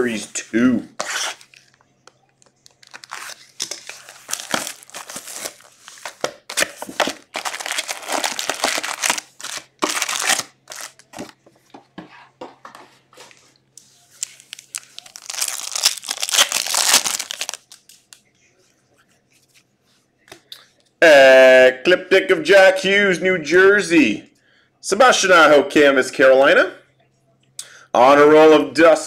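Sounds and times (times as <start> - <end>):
plastic wrap crinkling and tearing: 2.4 - 11.3, 14.0 - 18.2
foil pack tearing open: 2.8 - 5.7, 6.5 - 11.0, 14.3 - 17.8.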